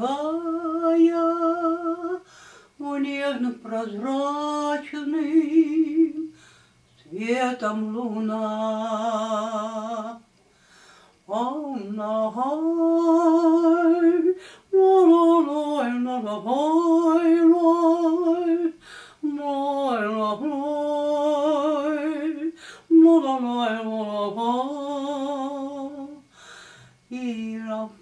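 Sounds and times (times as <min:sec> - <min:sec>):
breaths: 0:02.2 - 0:02.8, 0:06.3 - 0:06.9, 0:10.4 - 0:11.2, 0:14.4 - 0:14.7, 0:18.8 - 0:19.2, 0:22.6 - 0:22.9, 0:26.3 - 0:27.1.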